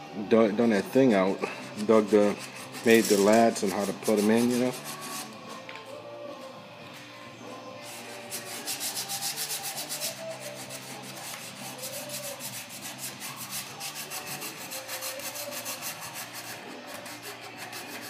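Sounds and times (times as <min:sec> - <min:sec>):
sandpaper rubbing on wood: 0:01.6 - 0:05.4, 0:07.8 - 0:18.0.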